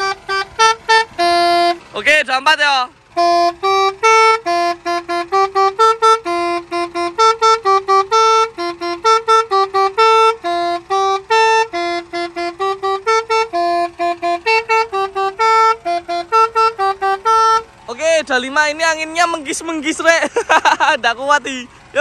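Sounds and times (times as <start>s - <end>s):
musical air horn melody: 0.0s - 1.9s, 3.0s - 17.8s.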